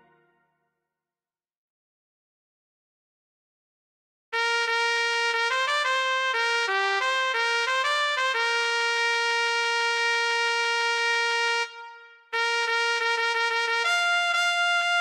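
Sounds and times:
flugelhorn melody: 0:04.4 - 0:15.0.

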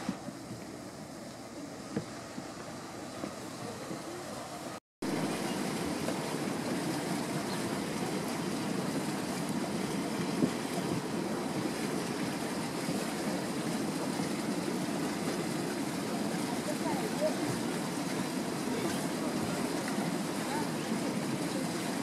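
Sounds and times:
wind on microphone: 0:05.2 - 0:16.6.

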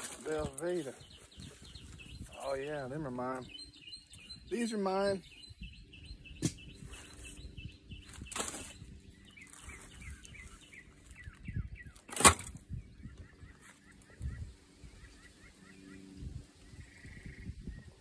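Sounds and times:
rustling of cooler bag: 0:00.0 - 0:02.0
small birds chirping: 0:00.0 - 0:18.0.

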